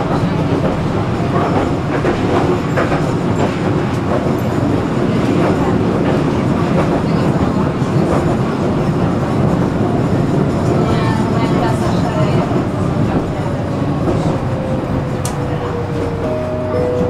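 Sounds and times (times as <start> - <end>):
tram wheels on rails: 0.0 - 17.0.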